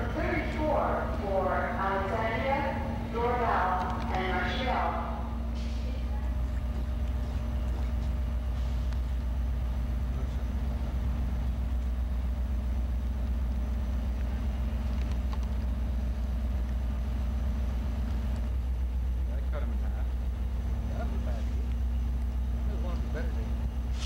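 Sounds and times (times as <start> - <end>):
even hum: 0.0 - 18.8
diesel locomotive idling: 0.0 - 24.0.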